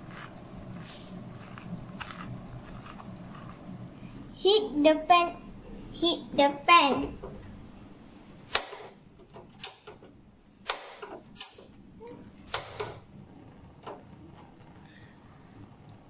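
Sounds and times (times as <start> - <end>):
igniter clicking: 8.5 - 10.0, 10.7 - 11.7.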